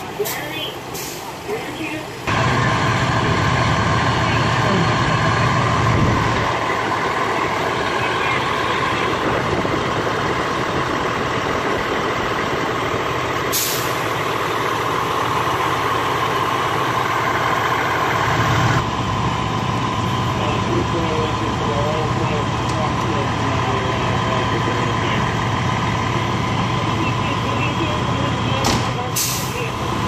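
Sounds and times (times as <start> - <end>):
diesel engines idling: 0.0 - 30.0
air brake hiss: 13.5 - 14.0.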